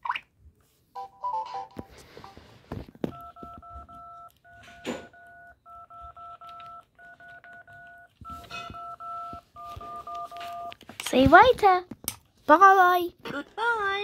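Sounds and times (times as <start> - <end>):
toy phone dialing beeps: 3.1 - 10.8.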